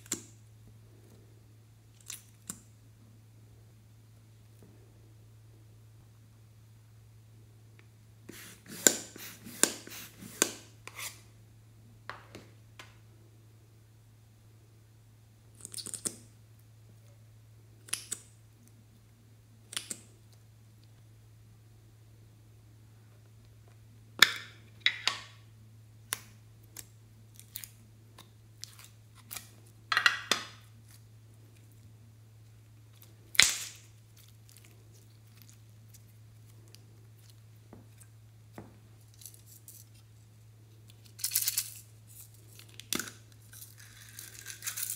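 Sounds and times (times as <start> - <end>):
steady low hum: 0.0 - 30.0, 30.6 - 44.9.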